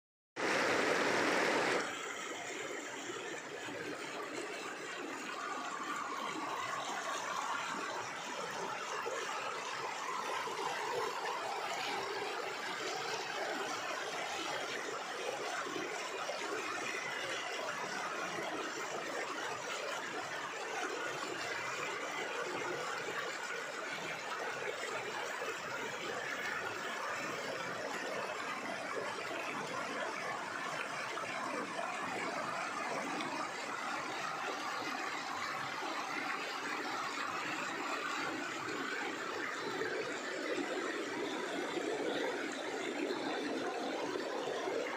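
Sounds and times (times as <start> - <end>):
river rushing over boulders: 0.4 - 2.6.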